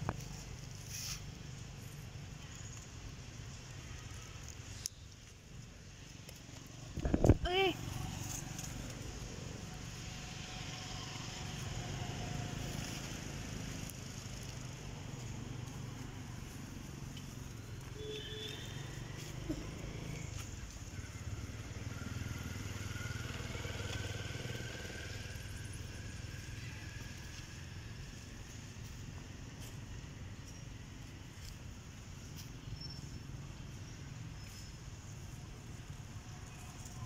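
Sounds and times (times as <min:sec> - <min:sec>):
engine rumbling: 0:00.0 - 0:37.0
faint high calls: 0:17.2 - 0:28.2.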